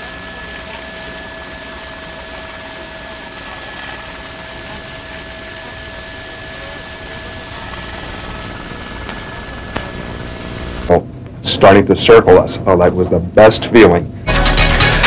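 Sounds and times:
helicopter cabin rushing hum: 0.0s - 11.0s
high whining tones: 0.0s - 11.0s.

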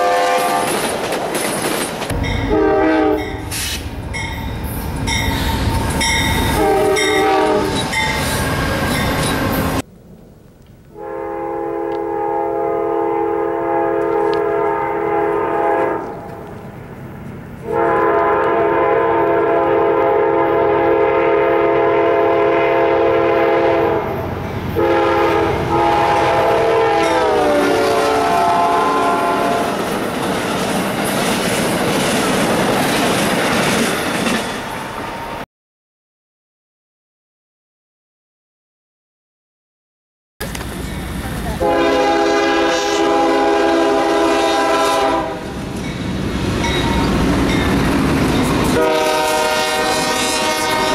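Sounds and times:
train air horn blasts: 0.0s - 0.8s, 2.2s - 3.9s, 5.3s - 9.0s, 10.9s - 16.4s, 17.6s - 24.2s, 24.8s - 29.8s, 41.6s - 45.6s, 48.7s - 50.9s
train cars rumbling by: 0.0s - 35.4s, 40.4s - 50.9s.

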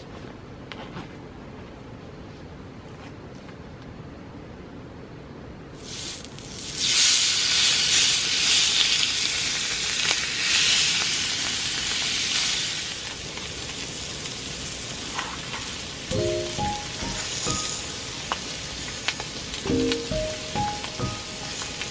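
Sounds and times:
meat sizzling on grill pan: 5.8s - 21.9s.

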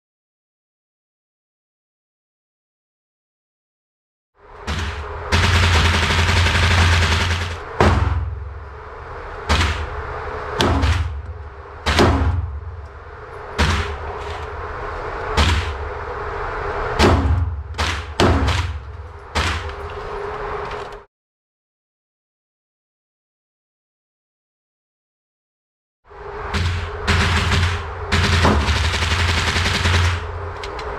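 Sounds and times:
loud steady noise: 4.4s - 21.1s, 26.1s - 30.9s.

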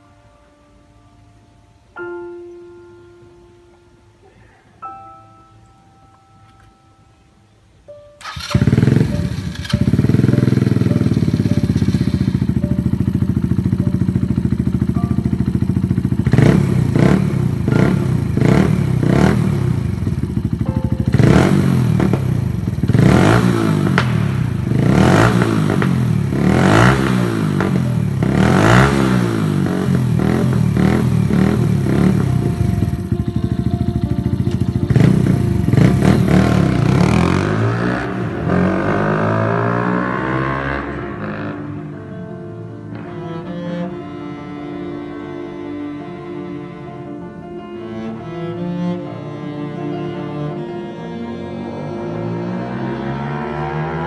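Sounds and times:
motorcycle engine idling and revving: 8.2s - 41.9s, 51.6s - 54.0s
motorcycle pulling away: 8.2s - 54.0s.

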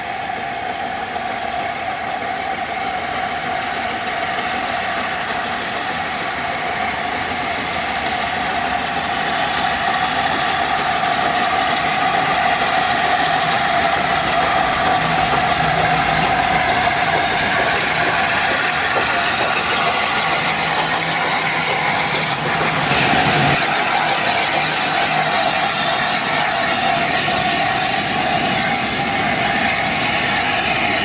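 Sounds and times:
steam train approaching: 0.0s - 31.0s.

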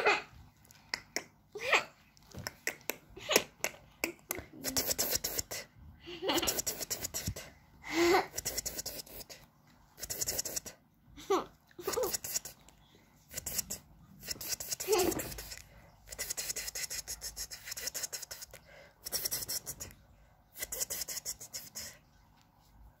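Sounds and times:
hands rubbing near microphone: 13.3s - 20.0s, 20.6s - 22.0s.

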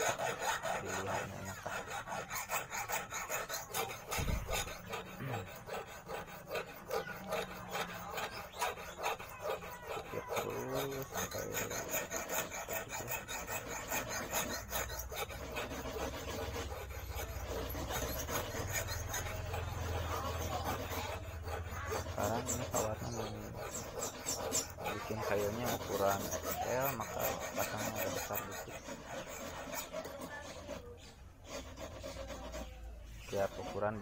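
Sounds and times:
hand file rasping on wire: 0.0s - 34.0s.

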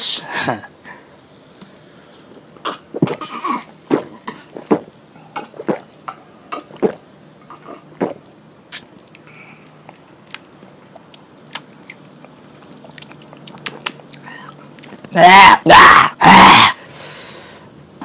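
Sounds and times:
man swallowing a drink: 2.3s - 15.2s
small clicks and mouth sounds: 2.3s - 15.2s.

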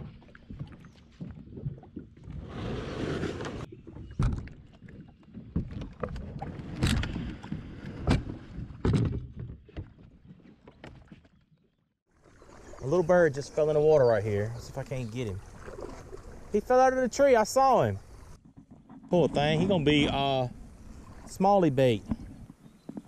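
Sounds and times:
kayak hull scraping concrete: 2.3s - 3.8s, 5.0s - 9.0s, 12.6s - 23.0s.

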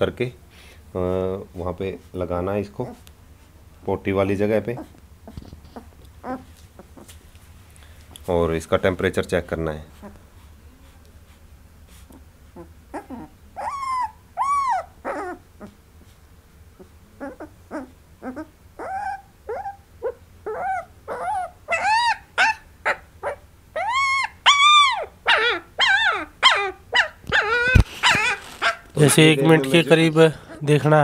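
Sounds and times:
puppy whimpering and yelping: 4.8s - 7.1s, 12.1s - 15.8s, 16.8s - 28.9s.

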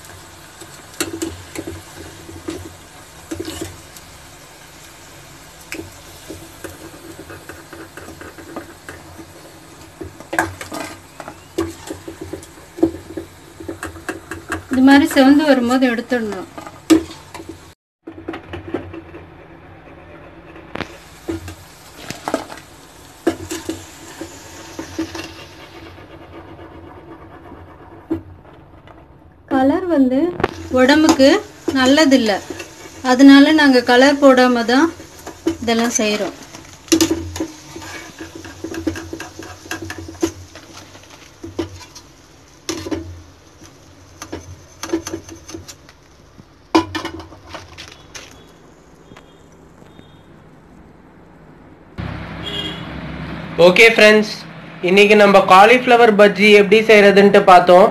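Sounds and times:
food sizzling in hot oil: 0.0s - 17.8s, 20.7s - 26.2s, 30.3s - 50.2s
steel ladle scraping a pan: 6.3s - 17.5s, 23.2s - 28.2s, 30.4s - 42.1s.

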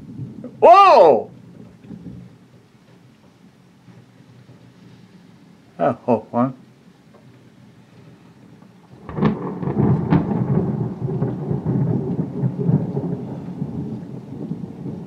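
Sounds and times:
deep thunder rumble: 0.0s - 2.7s, 8.9s - 15.0s
heavy rain: 0.0s - 15.0s
thunder crack: 8.9s - 15.0s.

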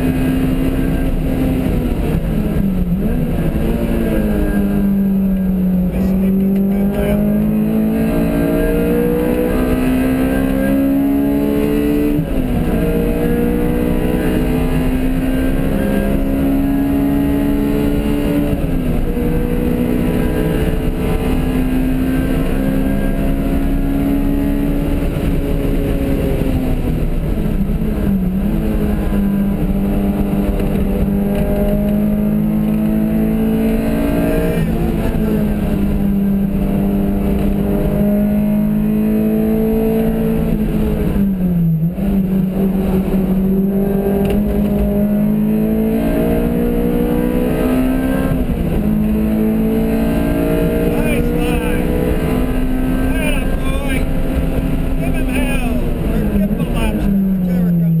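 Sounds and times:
race car engine accelerating: 0.0s - 58.0s.

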